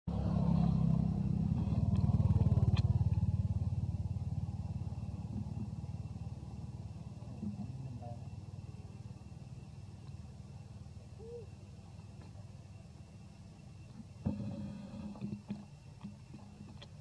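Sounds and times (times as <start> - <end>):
vehicle engine passing by: 0.1 - 9.8.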